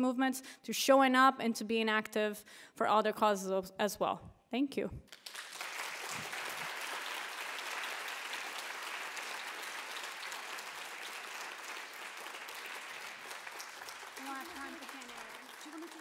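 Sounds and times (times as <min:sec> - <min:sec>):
crowd applauding: 0:05.1 - 0:16.0.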